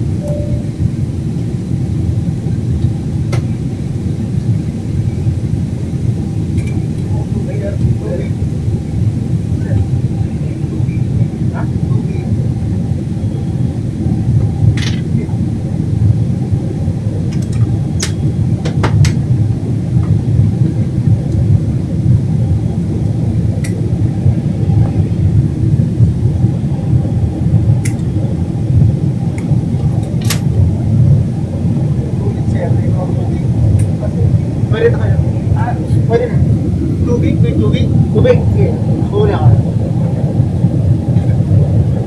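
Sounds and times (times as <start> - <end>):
jet engine and airflow roar: 0.0 - 42.0.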